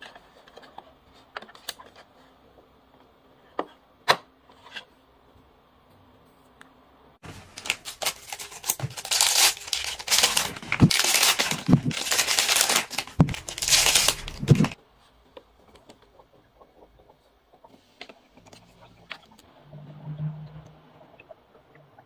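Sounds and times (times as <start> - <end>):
packaging crinkling and tearing: 7.2 - 14.8.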